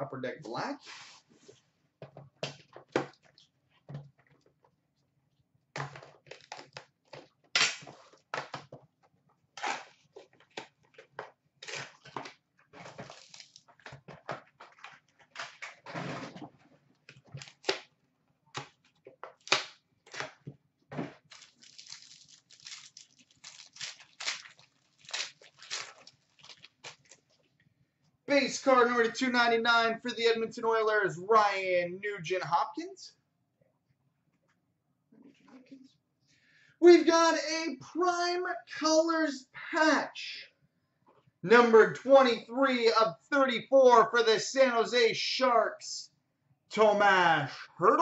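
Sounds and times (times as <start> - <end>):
wrapping being torn and crumpled: 6.2 - 6.8, 11.6 - 13.9, 17.4 - 17.9, 21.2 - 27.4
cards and packaging handled: 9.6 - 15.7, 17.0 - 17.9, 21.2 - 27.4.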